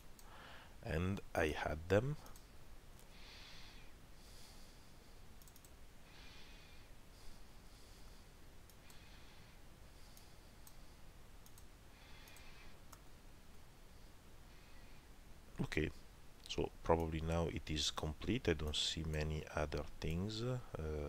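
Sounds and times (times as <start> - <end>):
soft breaths: 0.0 - 0.9, 2.2 - 16.2
computer mouse clicks: 5.4 - 5.8, 10.1 - 10.8, 11.4 - 13.0.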